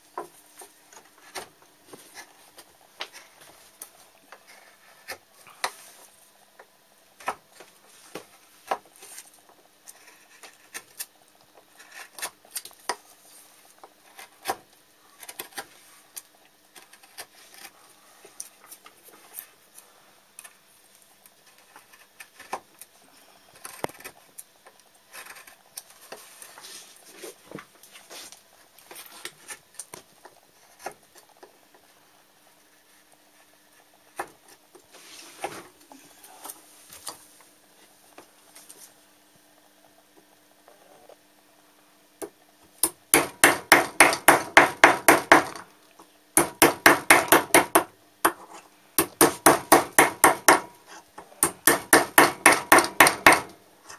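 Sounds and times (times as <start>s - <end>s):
chisel carving wood: 9.8s - 12.4s, 14.0s - 14.6s, 15.2s - 15.8s, 16.7s - 17.8s, 21.5s - 22.6s, 23.6s - 24.3s, 25.1s - 26.2s, 42.8s - 45.6s, 46.4s - 53.5s.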